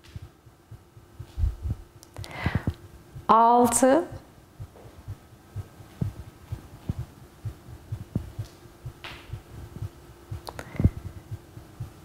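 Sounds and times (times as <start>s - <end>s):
steady low hum: 0.0s - 12.0s
person breathing: 2.2s - 2.8s, 10.5s - 11.2s.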